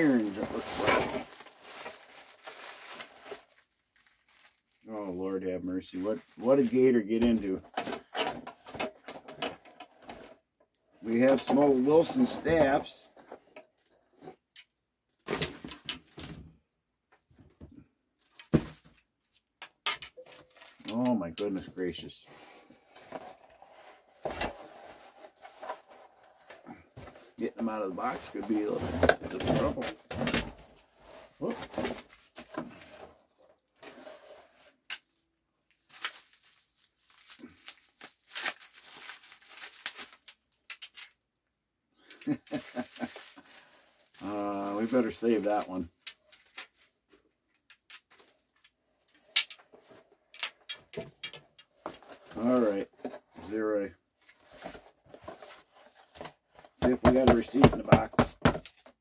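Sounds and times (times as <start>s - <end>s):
plastic wrapping crinkling and tearing: 0.0s - 7.4s, 34.9s - 41.2s, 42.3s - 47.0s
rustling: 0.0s - 10.4s, 22.8s - 34.9s, 42.0s - 58.1s.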